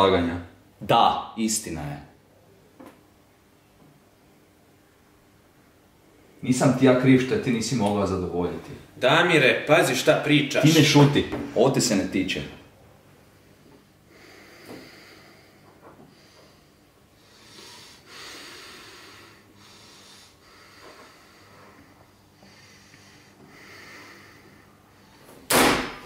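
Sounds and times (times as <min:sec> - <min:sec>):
man breathing heavily through nose: 0:13.5 - 0:25.5.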